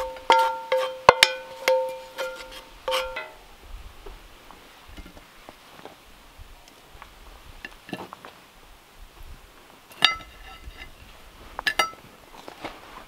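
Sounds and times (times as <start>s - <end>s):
plates clinking: 0.0s - 3.4s.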